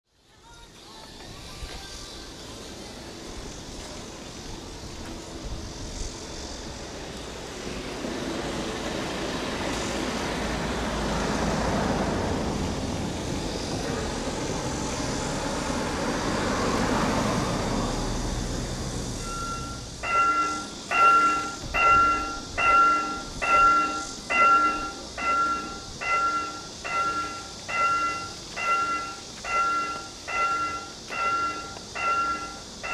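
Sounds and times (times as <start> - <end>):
level crossing bell ringing: 19.2 - 32.9.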